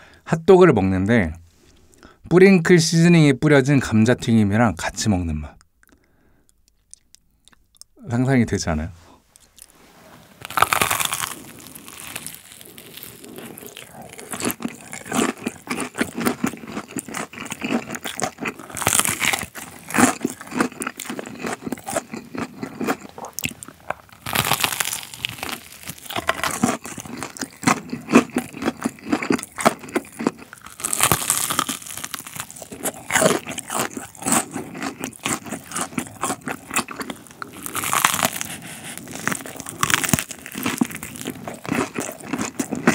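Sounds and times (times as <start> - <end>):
chewing crunches: 10.4 - 42.9
crunchy bites: 10.4 - 42.9.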